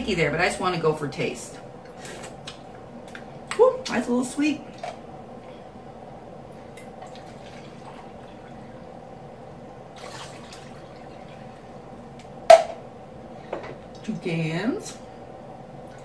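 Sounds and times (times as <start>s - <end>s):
water dripping and filling can: 10.0s - 11.1s.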